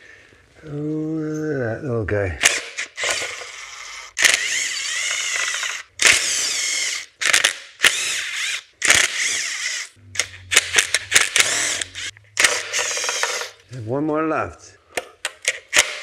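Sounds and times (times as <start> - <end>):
sharp ratchet clicks: 2.4 - 13.6
cordless ratchet motor whine: 2.8 - 13.6.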